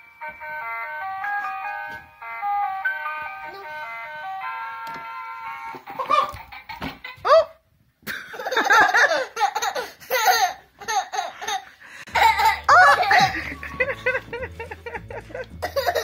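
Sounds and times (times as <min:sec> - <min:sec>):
child giggling: 0:05.9 - 0:07.4, 0:08.1 - 0:16.0.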